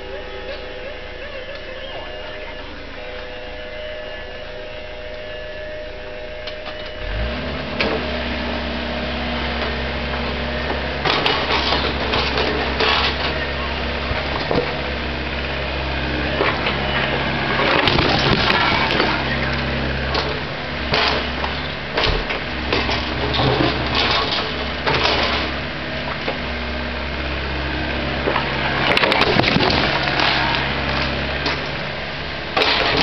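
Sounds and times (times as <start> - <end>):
excavator diesel engine running: 0.0 - 33.0
bucket scraping concrete rubble: 11.0 - 13.4, 22.7 - 25.6, 28.3 - 31.6.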